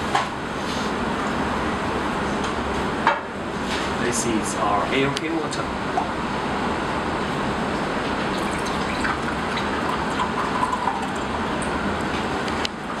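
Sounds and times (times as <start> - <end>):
background hiss and rumble: 1.0 - 13.0
water pouring into glass: 8.2 - 11.8.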